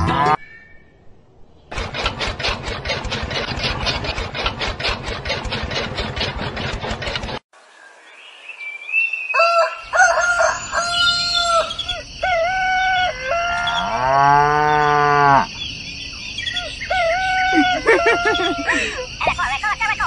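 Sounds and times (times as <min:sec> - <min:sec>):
cow mooing: 0:13.6 - 0:15.5.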